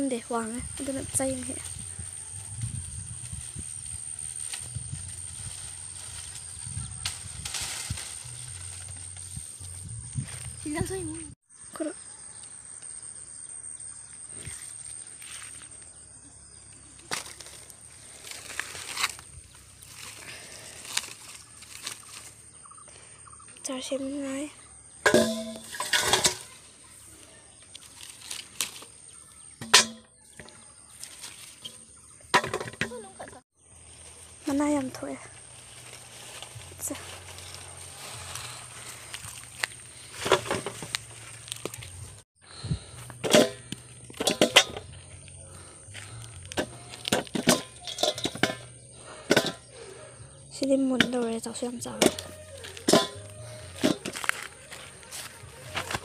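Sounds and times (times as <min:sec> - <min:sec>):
leaves rustling: 0:00.4 - 0:11.4, 0:17.0 - 0:22.6, 0:25.6 - 0:29.5, 0:30.8 - 0:32.1, 0:33.1 - 0:43.0, 0:51.0 - 0:56.0
fruit clanking into metal bowl: 0:25.0 - 0:26.6, 0:29.6 - 0:30.5, 0:31.6 - 0:33.0, 0:43.2 - 0:45.0, 0:46.5 - 0:49.7, 0:51.9 - 0:54.2.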